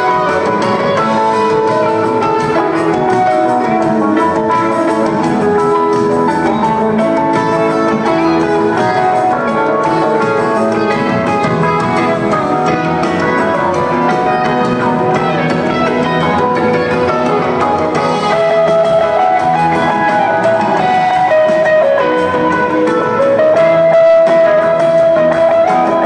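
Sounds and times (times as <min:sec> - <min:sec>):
rock band playing live: 0:00.0 - 0:26.0.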